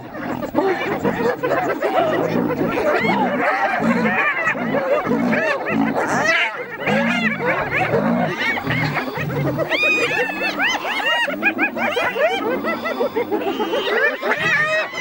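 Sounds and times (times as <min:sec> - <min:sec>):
hyenas giggling and squealing: 0:00.0 - 0:15.0
low growls: 0:01.8 - 0:10.5.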